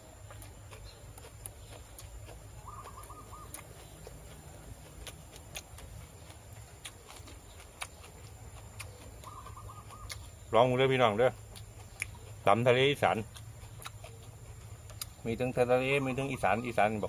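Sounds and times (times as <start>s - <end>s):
bird calling: 0.8s - 4.7s, 8.8s - 11.1s, 13.7s - 17.0s.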